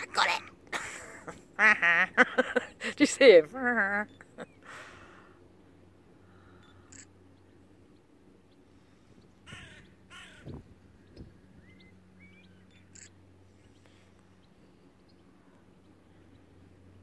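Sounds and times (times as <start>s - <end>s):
crow cawing: 9.4s - 10.6s.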